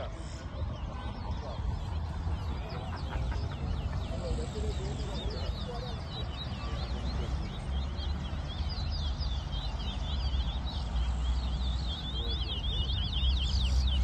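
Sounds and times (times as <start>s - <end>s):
finch singing whistled notes: 0.0s - 14.0s.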